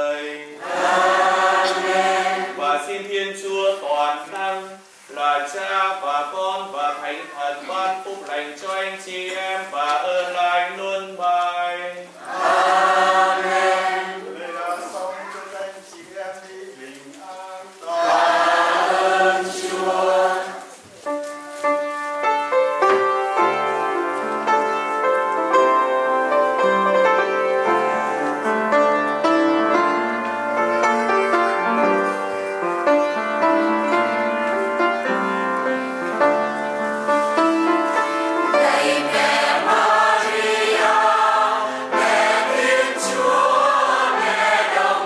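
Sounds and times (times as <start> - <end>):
choir singing a hymn: 0.0 - 15.0, 17.8 - 20.8, 37.0 - 45.0
keyboard accompaniment: 18.0 - 45.0.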